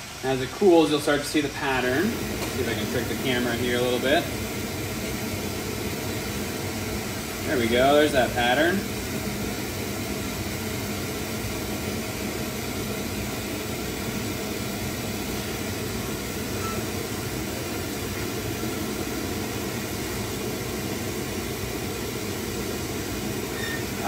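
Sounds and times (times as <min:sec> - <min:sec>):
torch burning with rushing hiss: 0:00.0 - 0:24.0.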